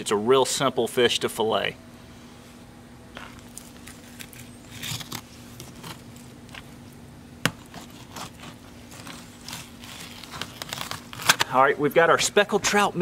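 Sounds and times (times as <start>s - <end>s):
knife cutting and scraping fish: 3.2s - 6.7s, 7.5s - 11.4s.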